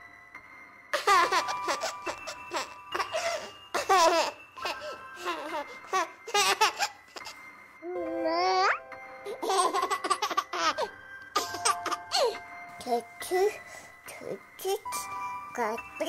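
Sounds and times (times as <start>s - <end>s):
background music with held notes: 0.0s - 16.0s
baby giggling and laughing: 1.0s - 7.4s, 8.2s - 12.4s.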